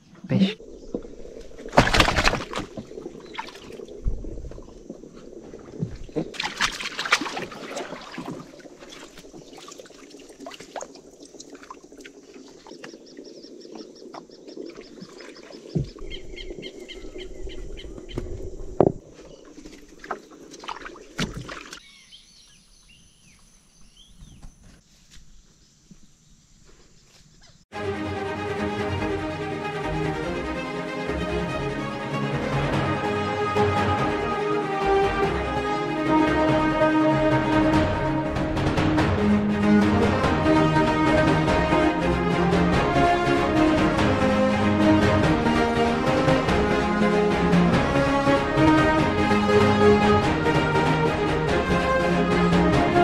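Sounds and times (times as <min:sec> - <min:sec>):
water splashing: 0:00.0 - 0:21.9, 0:28.8 - 0:53.0
birds calling: 0:00.0 - 0:24.8
knocks and bumps in boat: 0:15.7 - 0:16.4, 0:17.8 - 0:21.8.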